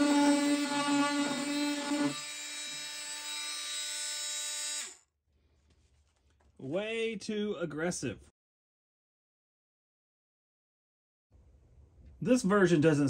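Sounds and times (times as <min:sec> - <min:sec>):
oscillating multi-tool buzzing: 0:00.0 - 0:05.1.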